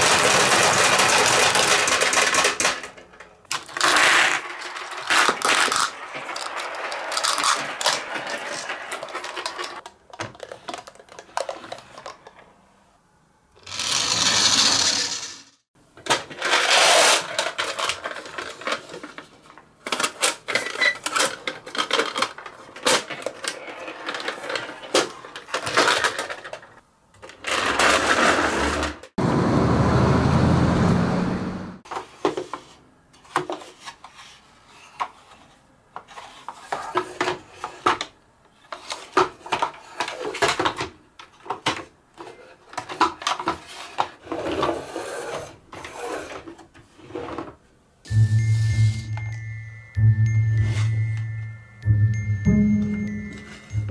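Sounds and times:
marbles rattling down wooden ramps: 0:00.0 - 0:03.0, 0:03.6 - 0:09.8, 0:13.7 - 0:15.5
marbles clattering into plastic trucks: 0:00.0 - 0:12.5, 0:13.6 - 0:29.0, 0:36.1 - 0:46.7.

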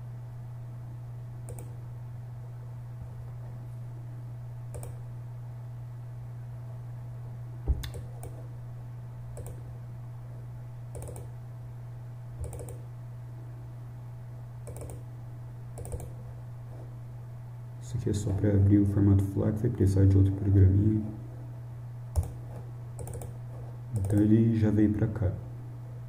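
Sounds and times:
steady low hum: 0:00.0 - 0:26.0
computer mouse clicks: 0:01.5 - 0:01.8, 0:04.7 - 0:05.0, 0:07.8 - 0:08.4, 0:09.3 - 0:09.6, 0:10.9 - 0:11.3, 0:12.4 - 0:12.8, 0:14.6 - 0:15.0, 0:15.8 - 0:16.2, 0:22.2 - 0:22.4, 0:23.0 - 0:24.3.

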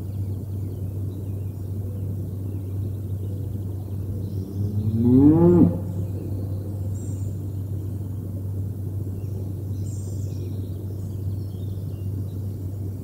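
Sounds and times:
steady low hum: 0:00.0 - 0:13.0
cow mooing: 0:04.6 - 0:06.2.

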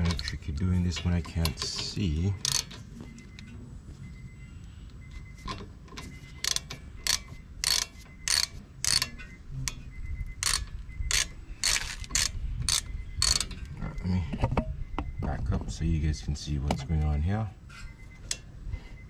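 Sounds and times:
ratchet wrench clicking: 0:01.3 - 0:02.8, 0:06.4 - 0:09.2, 0:10.4 - 0:13.5.

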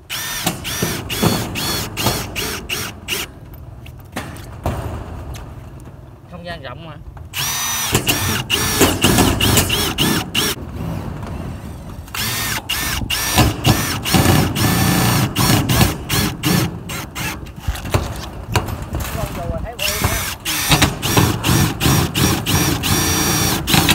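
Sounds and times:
drill motor whine: 0:00.1 - 0:03.3, 0:07.4 - 0:10.6, 0:12.2 - 0:17.4, 0:19.8 - 0:21.2, 0:21.9 - 0:23.9.

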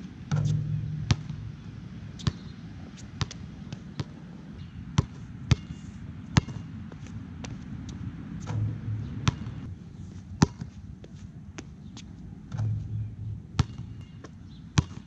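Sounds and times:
basketball bouncing on court: 0:00.3 - 0:02.6, 0:03.2 - 0:04.2, 0:05.0 - 0:05.8, 0:06.4 - 0:06.7, 0:08.4 - 0:09.7, 0:12.5 - 0:14.2, 0:14.8 - 0:15.0
low rumble: 0:00.3 - 0:03.0, 0:08.4 - 0:09.7, 0:12.6 - 0:14.0.

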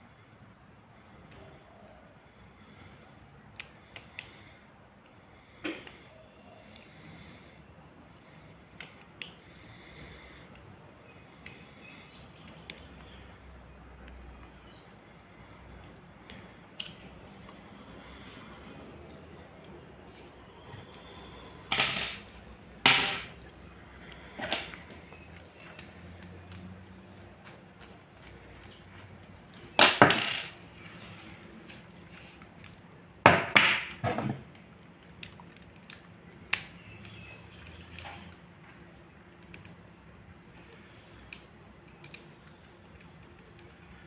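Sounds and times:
light ticks of small metal parts: 0:25.1 - 0:29.6, 0:35.0 - 0:39.9, 0:40.5 - 0:44.0.

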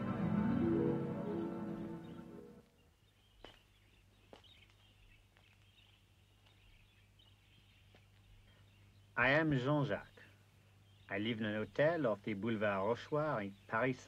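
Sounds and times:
music: 0:00.0 - 0:02.7.

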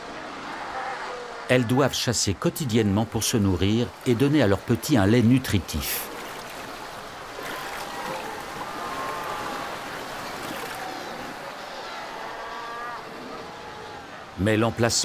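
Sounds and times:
surf breaking over rocks: 0:05.8 - 0:14.3
seals calling: 0:06.8 - 0:14.9.

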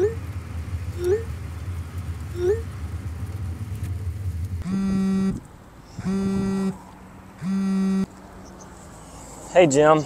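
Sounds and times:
mobile phone buzzing: 0:04.6 - 0:05.4, 0:06.0 - 0:06.8, 0:07.4 - 0:08.1.

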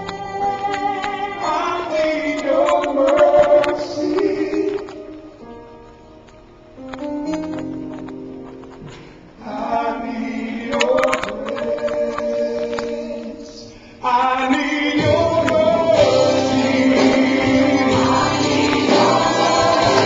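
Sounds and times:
choir singing gospel song: 0:00.0 - 0:05.4, 0:09.4 - 0:20.0.

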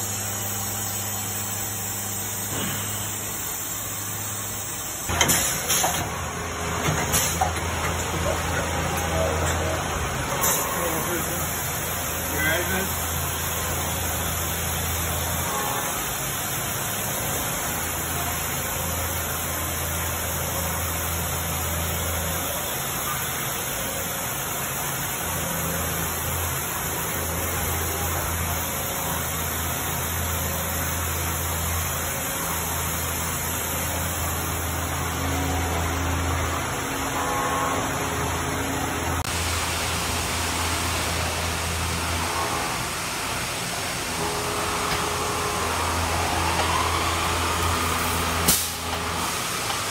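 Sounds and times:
low machine hum: 0:00.0 - 0:49.9
coolant spray hiss: 0:47.7 - 0:49.9.

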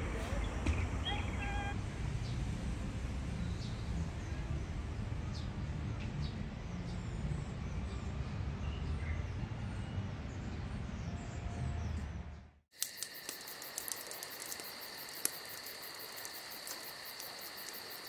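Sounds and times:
faint chirps: 0:12.8 - 0:18.0
insects trilling: 0:12.8 - 0:18.0
sharp clicks: 0:12.8 - 0:18.0.

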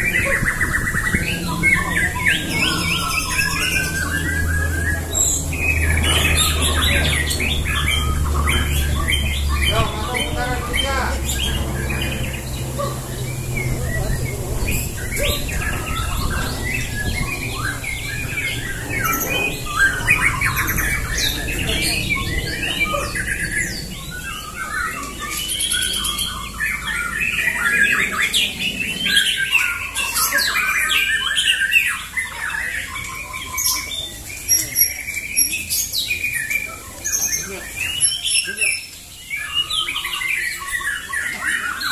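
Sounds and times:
birds singing: 0:00.0 - 0:41.9.

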